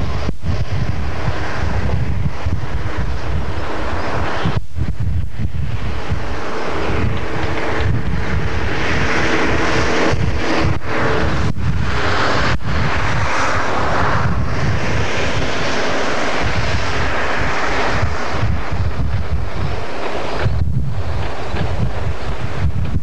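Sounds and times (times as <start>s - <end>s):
distant engine drone: 0.0s - 23.0s
wind buffeting microphone: 0.0s - 23.0s.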